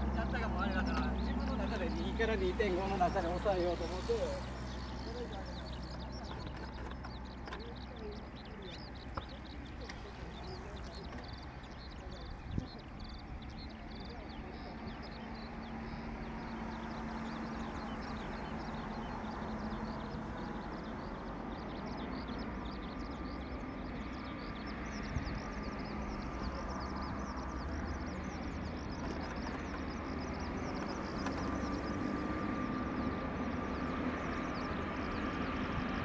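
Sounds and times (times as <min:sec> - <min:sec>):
distant turboprop plane drone: 0:00.0 - 0:36.0.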